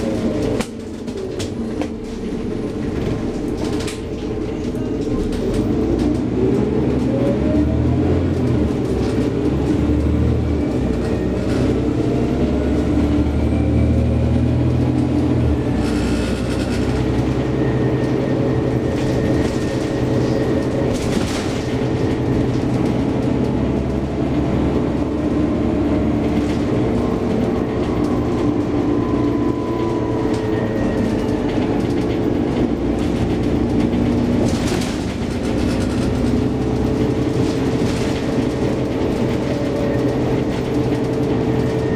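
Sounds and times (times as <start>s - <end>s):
bus engine drone with whine: 0.0s - 41.9s.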